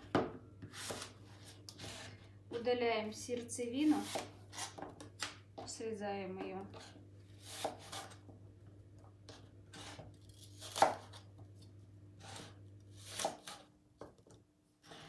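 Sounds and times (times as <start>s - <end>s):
knife slicing apples: 0.6s - 2.2s, 3.8s - 4.9s, 6.8s - 8.2s, 9.3s - 11.3s, 12.2s - 13.7s.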